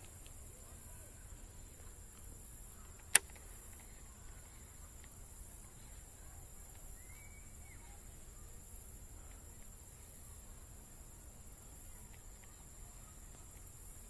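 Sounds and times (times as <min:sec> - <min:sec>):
faint high hiss: 0:00.0 - 0:14.0
sharp click: 0:03.0 - 0:03.9.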